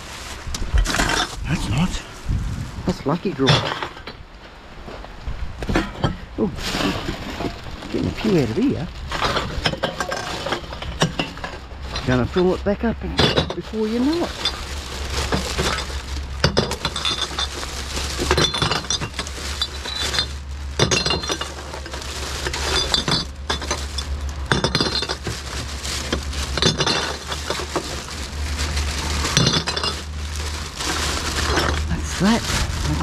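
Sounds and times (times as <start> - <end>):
glass bottles clinking: 5.7 - 8.4, 9.1 - 32.4.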